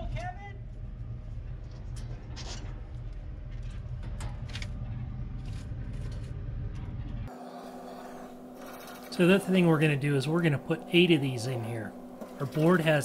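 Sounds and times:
steady low rumble: 0.0 - 7.3.

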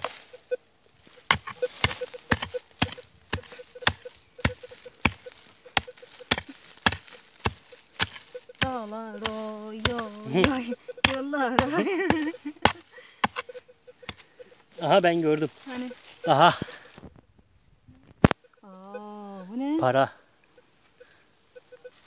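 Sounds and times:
footsteps crunching on forest floor: 0.0 - 17.2, 19.9 - 22.0
person humming: 8.6 - 12.6.

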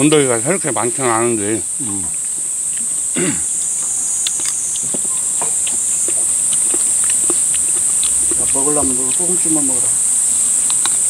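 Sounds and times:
high-pitched insect chorus: 0.0 - 11.0
murmur of voices: 0.0 - 11.0
chopsticks clicking against bowls: 3.8 - 11.0.

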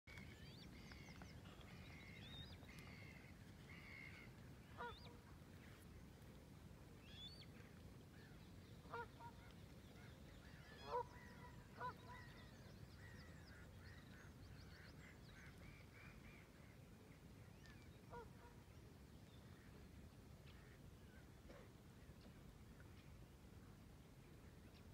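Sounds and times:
waterfowl calling: 2.8 - 5.2, 8.9 - 9.4, 10.7 - 12.4.

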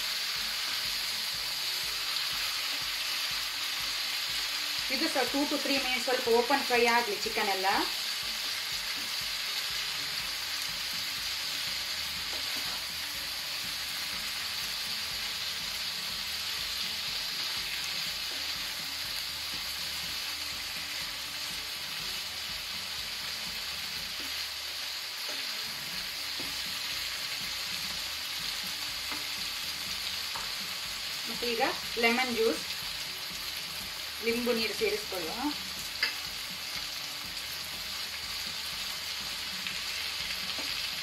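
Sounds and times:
food sizzling in frying pan: 0.0 - 41.0.

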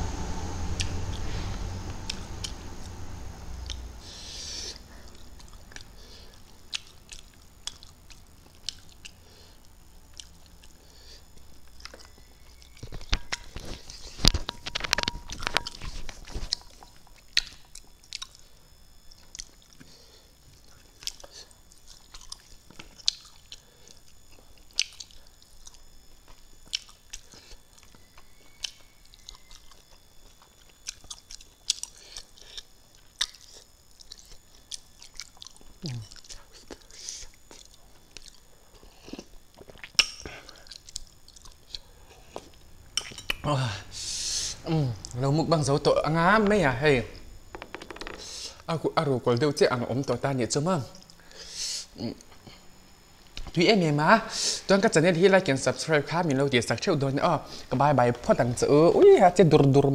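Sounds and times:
person chewing with lip smacks: 6.7 - 9.2, 21.0 - 43.4.

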